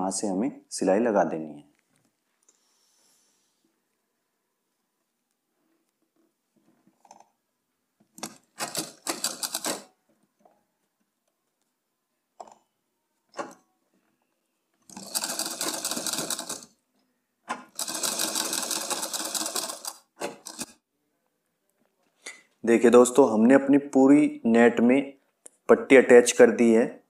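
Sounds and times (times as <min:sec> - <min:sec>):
sewing machine stitching: 0:08.2 - 0:09.9, 0:14.9 - 0:16.7, 0:17.5 - 0:20.8.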